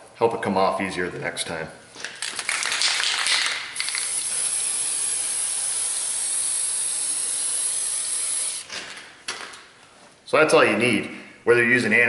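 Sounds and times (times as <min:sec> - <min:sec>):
aerosol spray hissing: 0:03.8 - 0:08.7.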